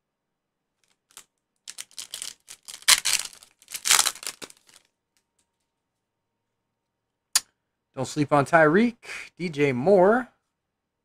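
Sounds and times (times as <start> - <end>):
foil wrapper tearing and crinkling: 0.8 - 4.9.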